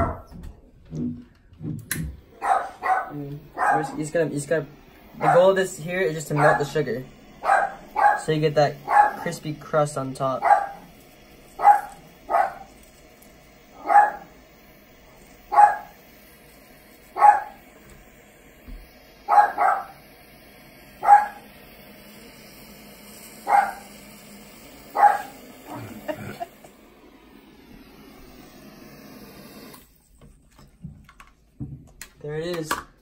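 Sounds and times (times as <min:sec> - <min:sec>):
dog barking: 0:02.3 - 0:04.0, 0:05.2 - 0:05.5, 0:06.3 - 0:06.7, 0:07.4 - 0:09.4, 0:10.4 - 0:10.9, 0:11.6 - 0:12.7, 0:13.7 - 0:14.4, 0:15.5 - 0:16.0, 0:17.1 - 0:17.6, 0:19.3 - 0:20.0, 0:21.0 - 0:21.5, 0:23.4 - 0:23.9, 0:24.9 - 0:26.0.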